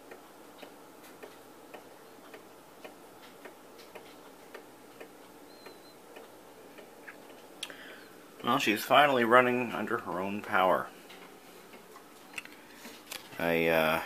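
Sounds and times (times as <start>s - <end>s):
clock ticking: 0.0s - 12.1s.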